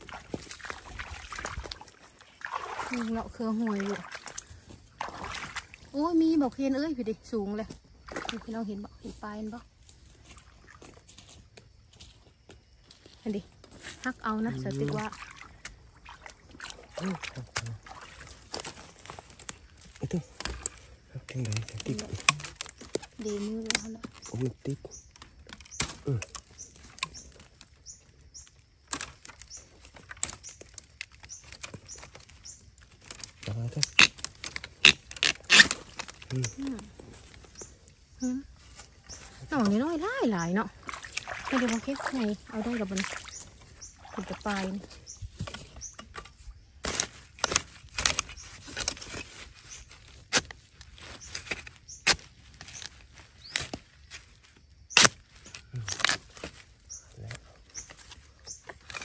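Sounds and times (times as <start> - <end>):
twigs snapping: 16.6 - 39.8, 40.8 - 59.0
dry leaves rustling and crackling: 16.6 - 59.0
digging blade chopping bamboo: 25.5 - 27.3, 33.0 - 36.5, 45.4 - 52.9, 54.9 - 56.6.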